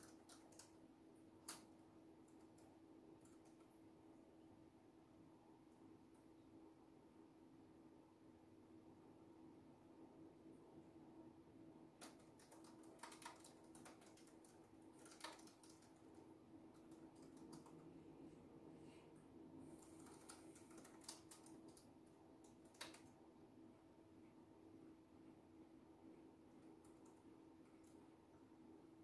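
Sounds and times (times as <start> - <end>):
laptop keyboard keystrokes: 0.0 - 0.8, 12.0 - 17.9, 19.8 - 23.1
low steady hum: 0.0 - 29.0.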